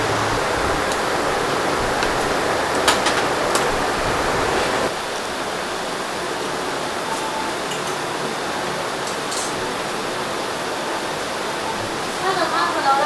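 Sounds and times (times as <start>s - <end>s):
busy kitchen noise: 0.0s - 13.0s
metal tongs and bowls clinking: 9.0s - 9.7s.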